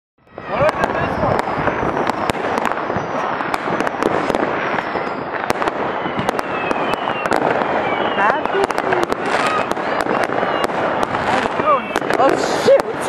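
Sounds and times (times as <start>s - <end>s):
firework whistles: 0.2s - 13.0s
fireworks crackling and banging: 0.2s - 13.0s.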